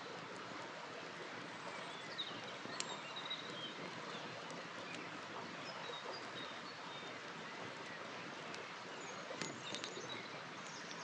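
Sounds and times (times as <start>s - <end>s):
campfire popping: 9.3s - 10.0s.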